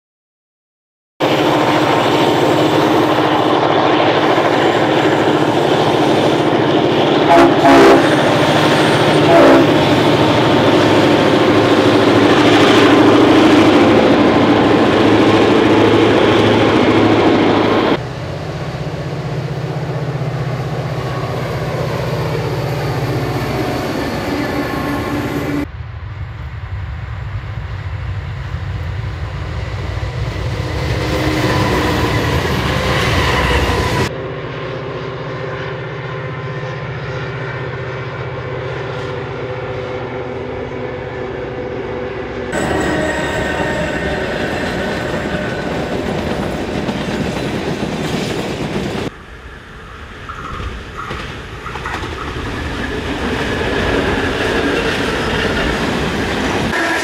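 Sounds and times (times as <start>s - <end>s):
diesel locomotives droning: 1.2s - 57.0s
locomotive horn: 1.6s - 14.0s, 31.0s - 47.3s, 56.7s - 57.0s.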